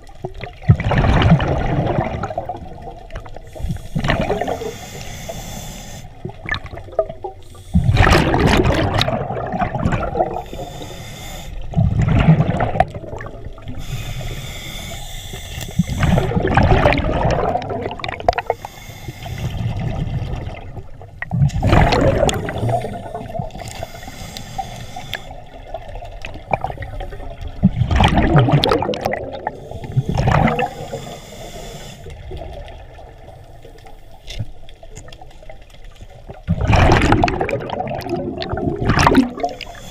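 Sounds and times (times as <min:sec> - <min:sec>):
exhaled bubbles rushing: 0:00.2 - 0:04.7, 0:06.2 - 0:10.7, 0:11.7 - 0:13.8, 0:15.7 - 0:18.6, 0:19.4 - 0:23.8, 0:25.6 - 0:30.9, 0:36.2 - 0:39.7
regulator hiss: 0:03.5 - 0:06.2, 0:10.4 - 0:11.6, 0:13.7 - 0:16.3, 0:18.5 - 0:19.6, 0:22.4 - 0:25.5, 0:29.6 - 0:32.1.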